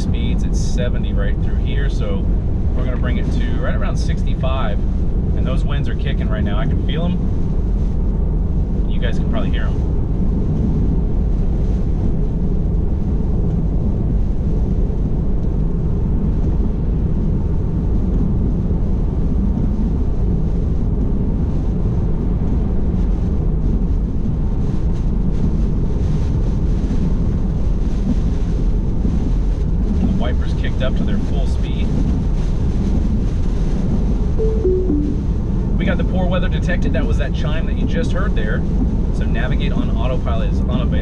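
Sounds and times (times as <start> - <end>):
gusting wind: 0.0 - 30.0.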